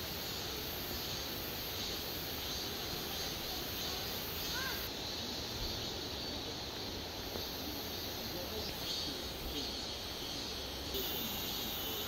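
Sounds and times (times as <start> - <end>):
high buzz of insects: 0.0 - 12.0
distant people talking: 3.1 - 12.0.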